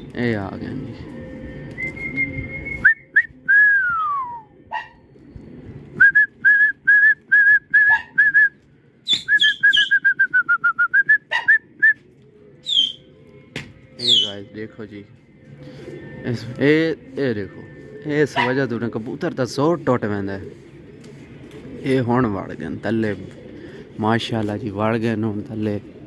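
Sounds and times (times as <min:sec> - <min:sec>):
person whistling: 0:01.8 - 0:04.5, 0:06.0 - 0:08.6, 0:09.2 - 0:12.0.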